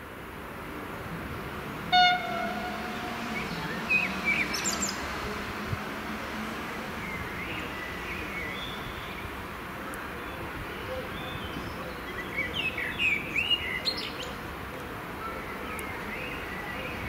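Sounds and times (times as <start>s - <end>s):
train rumble: 0.5s - 8.5s
train horn blast: 1.9s - 6.6s
birds chirping: 1.9s - 9.4s.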